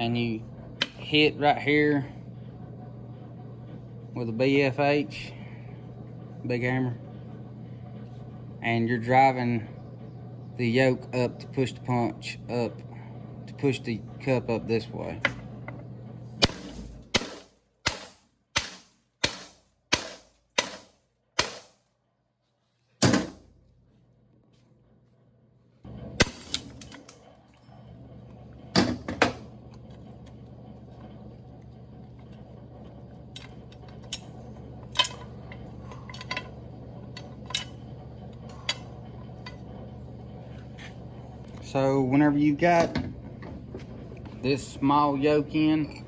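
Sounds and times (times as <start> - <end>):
steady low hum: 0.0 - 46.0
hammer striking steel: 16.4 - 21.8.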